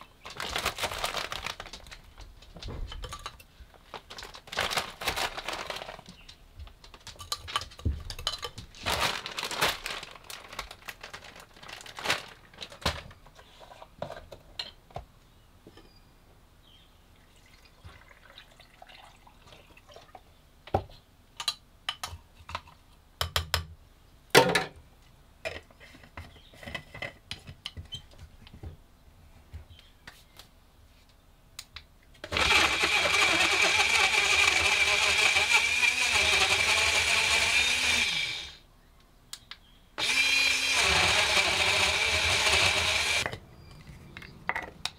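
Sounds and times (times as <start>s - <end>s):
plastic bag crinkling: 0.0s - 13.2s
milk pouring: 17.3s - 20.2s.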